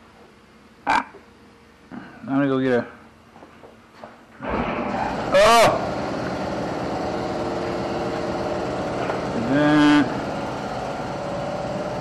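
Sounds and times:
small engine running: 4.4s - 12.0s.

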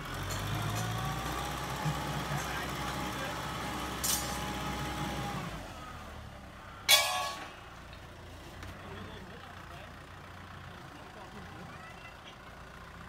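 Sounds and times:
tractor diesel engine running: 0.0s - 13.0s
loud metal clank ringing: 6.8s - 7.6s.

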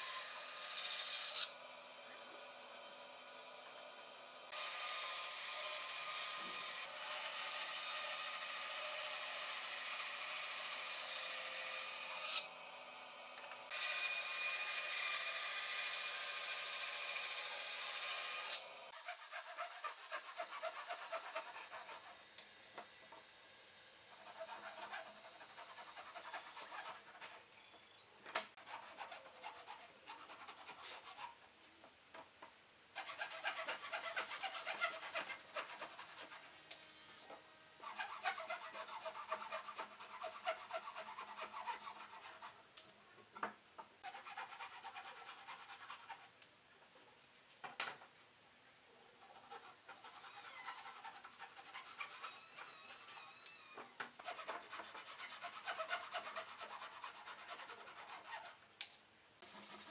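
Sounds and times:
bandsaw cutting wood: 0.0s - 22.1s, 33.0s - 36.4s, 37.8s - 42.4s, 54.2s - 58.5s
hand saw cutting back and forth: 0.0s - 22.4s, 24.1s - 27.5s, 28.6s - 31.4s, 33.0s - 36.8s, 37.8s - 42.6s, 44.0s - 46.4s, 49.2s - 58.6s, 59.4s - 59.9s.

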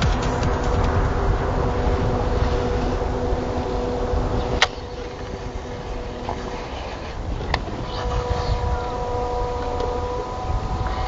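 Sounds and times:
boat motor humming: 0.0s - 11.0s
wind rumble: 0.0s - 11.0s.

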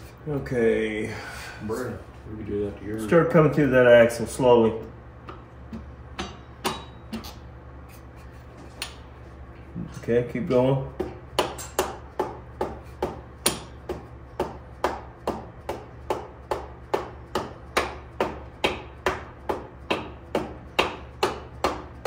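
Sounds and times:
hammer tapping metal axle: 5.2s - 7.4s, 11.0s - 22.0s.

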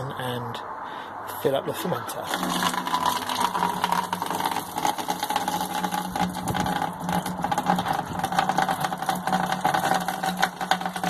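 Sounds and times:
liquid splashing into bucket: 2.2s - 11.0s
small pump humming: 2.3s - 11.0s.

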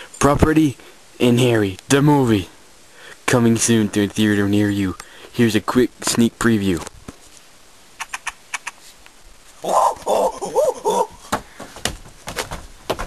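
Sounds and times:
short wavering cry: 9.6s - 11.2s.

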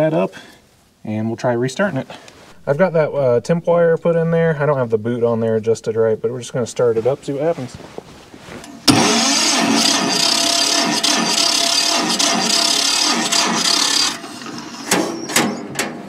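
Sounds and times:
electric starter cranking engine: 8.8s - 15.2s.

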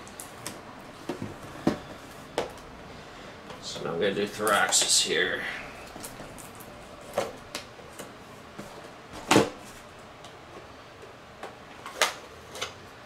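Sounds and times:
packaging clicks and crinkles: 5.8s - 8.1s.

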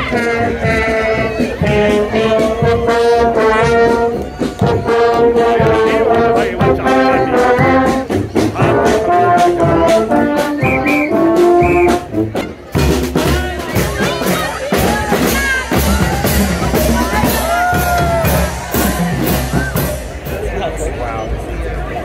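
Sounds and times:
marching brass band playing: 0.0s - 21.1s.

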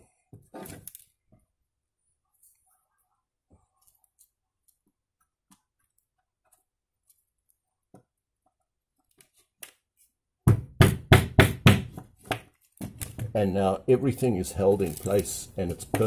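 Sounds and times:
hammer knocking nail into wood: 10.5s - 12.4s.

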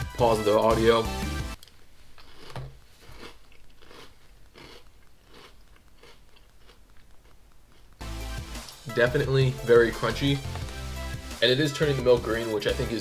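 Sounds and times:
person chewing crunchy cereal: 1.6s - 8.9s.

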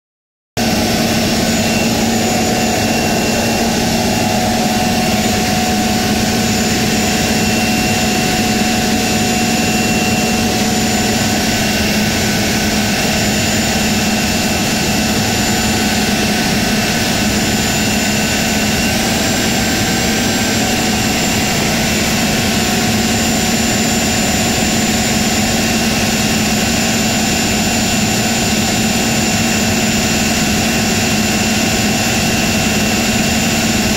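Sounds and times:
diesel engine running: 0.6s - 22.6s
high engine whine: 0.6s - 33.9s.

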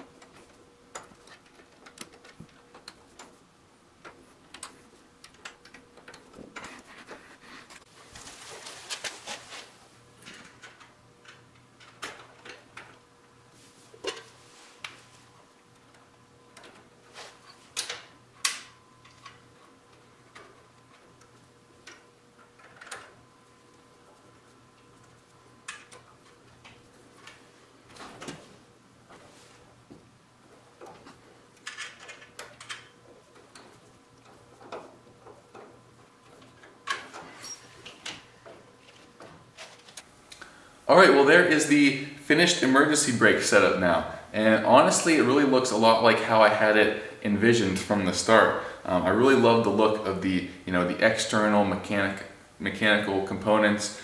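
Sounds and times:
faint steady hum: 0.0s - 54.0s
rustling: 6.5s - 9.9s.

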